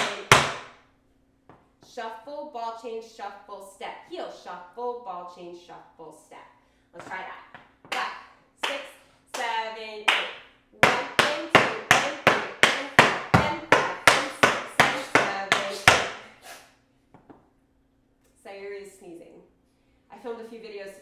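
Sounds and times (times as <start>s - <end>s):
tap shoes on wooden floor: 0.0s - 0.7s, 7.0s - 8.0s, 10.8s - 16.2s.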